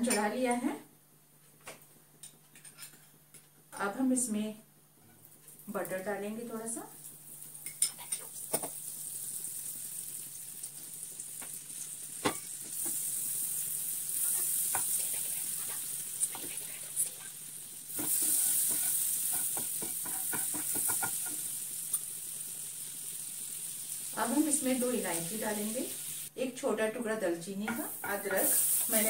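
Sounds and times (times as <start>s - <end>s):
butter sizzling in frying pan: 6.9s - 26.3s, 27.7s - 29.0s.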